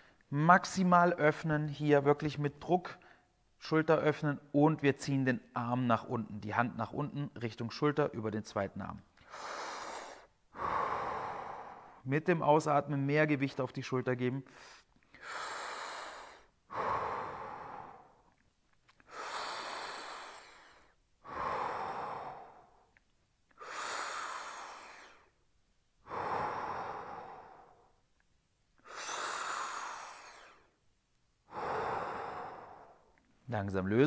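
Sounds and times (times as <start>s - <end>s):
man breathing deeply: 9.2s - 12.0s, 14.5s - 18.4s, 19.0s - 25.4s, 26.0s - 28.0s, 28.8s - 30.8s, 31.4s - 33.2s.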